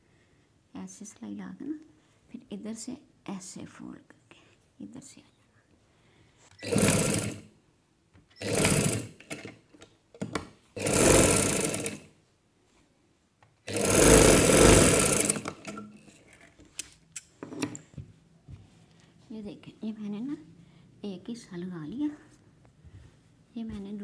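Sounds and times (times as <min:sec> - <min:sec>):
sewing machine stitching: 0:06.6 - 0:07.5, 0:08.4 - 0:09.7, 0:10.3 - 0:12.1, 0:13.7 - 0:16.5.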